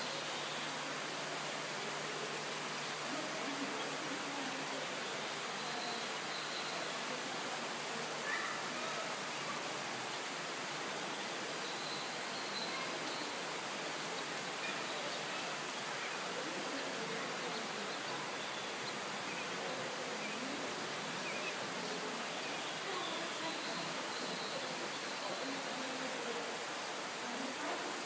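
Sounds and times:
background hiss: 0.0 - 28.0
faint high chirps: 5.6 - 7.0, 11.6 - 13.4.

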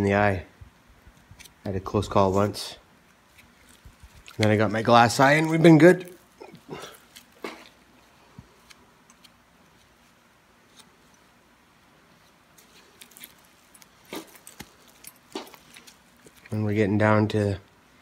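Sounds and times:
soft wet squishes: 2.4 - 11.4, 12.0 - 16.7.

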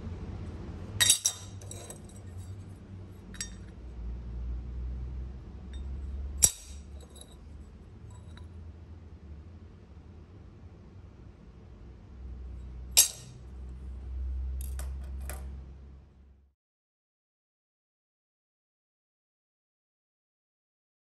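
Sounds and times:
metal gauge clinking on steel bracket: 1.0 - 2.6, 3.3 - 3.8, 5.7 - 7.4, 13.0 - 13.4, 14.6 - 15.5.

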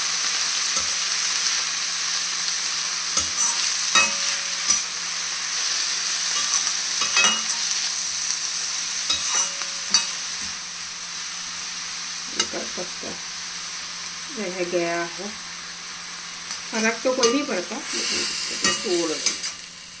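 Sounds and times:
leaves sizzling in hot oil: 0.0 - 20.0
metal spoon scraping pan: 3.2 - 4.9, 6.3 - 7.8, 9.1 - 10.2, 17.2 - 19.7.

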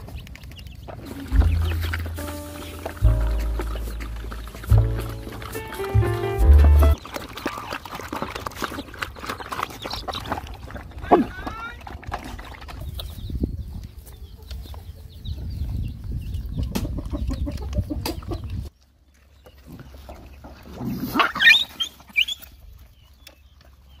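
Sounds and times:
dogs chewing and suckling: 0.0 - 15.0
low rumble: 1.0 - 7.0.

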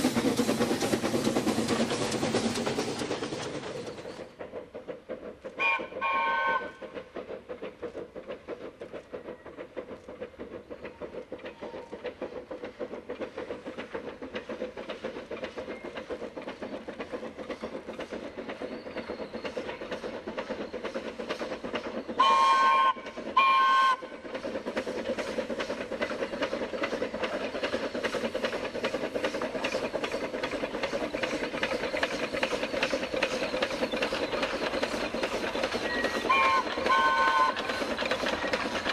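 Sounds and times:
steam locomotive chuffing: 0.0 - 38.9
steam whistle blasts: 5.6 - 6.8, 22.2 - 24.0, 36.3 - 37.6.

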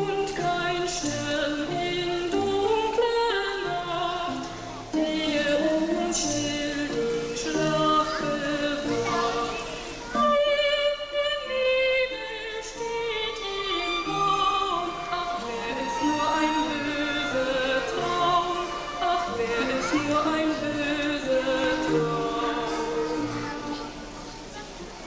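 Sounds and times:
voices singing slow melody: 0.0 - 25.0.

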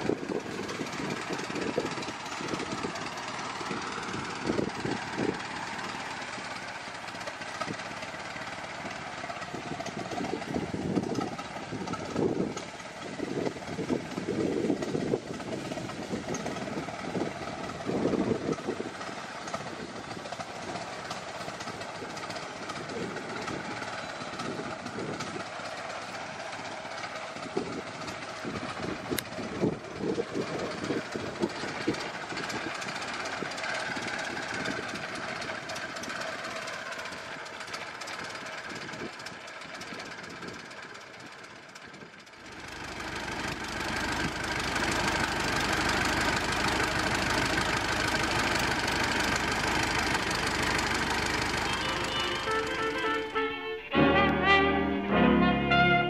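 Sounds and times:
wind buffeting microphone: 0.0 - 26.7, 27.3 - 36.3
steady outdoor hiss: 0.0 - 55.1.

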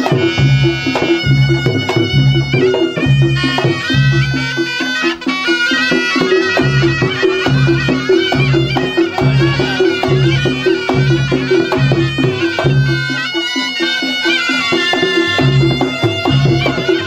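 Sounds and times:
drum beat: 0.0 - 17.0
reed shawm melody: 0.0 - 17.0.

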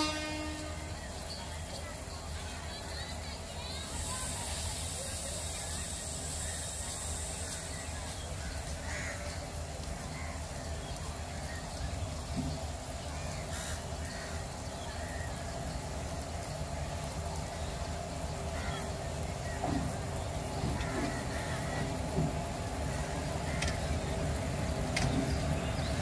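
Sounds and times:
faint distant voices: 0.0 - 26.0
crows cawing: 8.8 - 9.4, 13.5 - 14.4.

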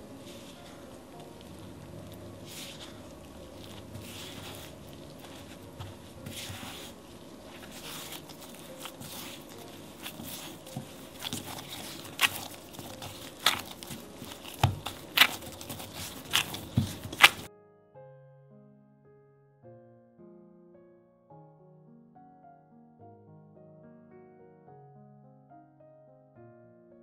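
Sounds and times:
faint rustling: 0.0 - 17.5
low steady hum: 0.0 - 17.5.

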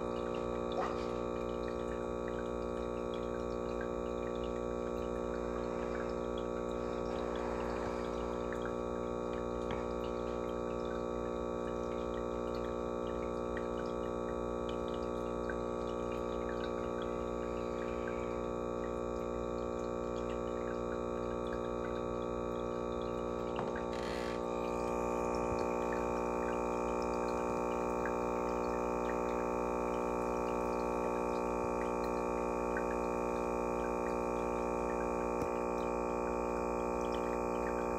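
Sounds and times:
aquarium filter motor humming: 0.0 - 37.9
water trickling: 0.0 - 37.9.

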